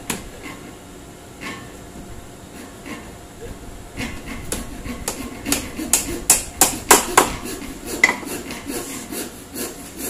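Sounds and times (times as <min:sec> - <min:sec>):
hammer driving a nail: 0:04.5 - 0:08.3.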